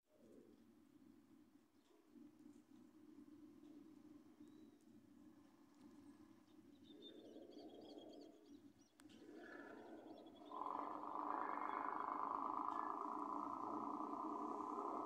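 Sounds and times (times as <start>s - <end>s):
small birds chirping: 6.4s - 15.0s
distant diesel freight train: 9.4s - 15.0s.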